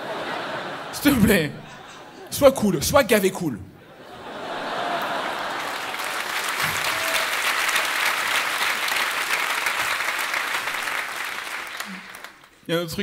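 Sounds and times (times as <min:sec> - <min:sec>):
audience applauding: 0:04.6 - 0:12.6.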